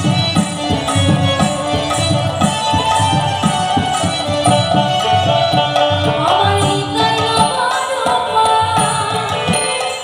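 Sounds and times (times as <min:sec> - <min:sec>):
hand drum rhythm: 0:00.0 - 0:10.0.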